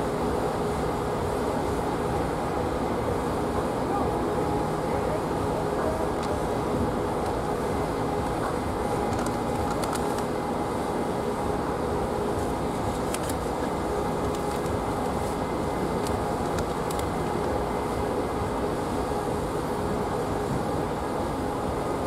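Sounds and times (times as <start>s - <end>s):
mechanical rumble with hum: 0.0s - 22.0s.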